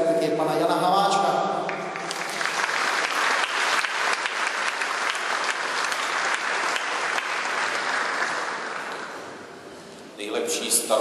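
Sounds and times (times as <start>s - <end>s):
audience applauding: 1.7s - 9.4s.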